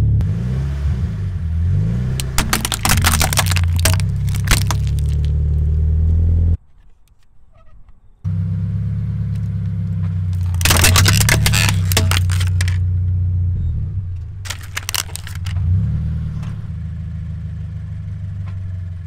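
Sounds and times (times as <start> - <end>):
plastic toys cracking under tyre: 2.1 - 5.4, 10.3 - 12.8, 14.5 - 15.7.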